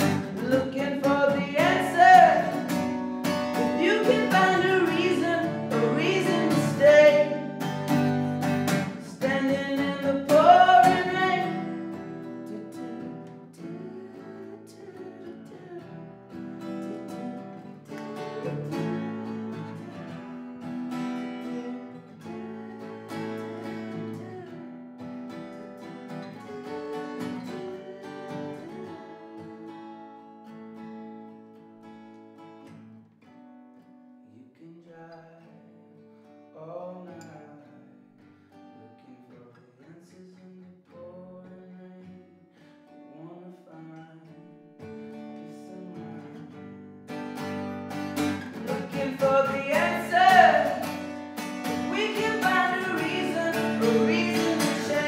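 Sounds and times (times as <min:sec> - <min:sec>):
man singing: 0:00.0 - 0:02.8, 0:03.5 - 0:07.8, 0:08.6 - 0:20.4, 0:21.3 - 0:24.6, 0:26.4 - 0:29.8, 0:34.4 - 0:35.7, 0:36.6 - 0:37.8, 0:38.8 - 0:42.4, 0:43.1 - 0:44.6, 0:45.4 - 0:46.7, 0:48.4 - 0:55.0
acoustic guitar strumming: 0:00.0 - 0:34.2, 0:40.4 - 0:55.0.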